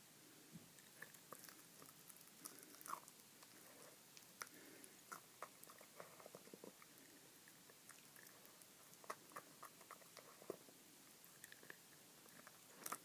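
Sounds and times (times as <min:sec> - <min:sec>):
teeth clicking and crunching: 0:00.8 - 0:10.6, 0:11.2 - 0:13.0
dog chewing on bone: 0:11.2 - 0:13.0.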